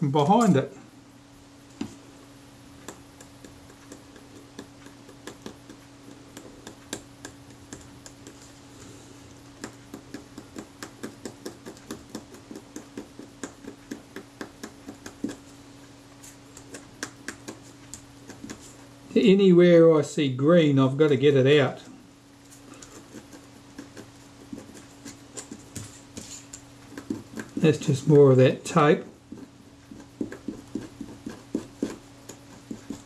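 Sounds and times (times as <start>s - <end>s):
faint low hum: 0.0s - 33.0s
light clicks and scratches: 22.5s - 33.0s
tool scraping leather: 22.6s - 33.0s.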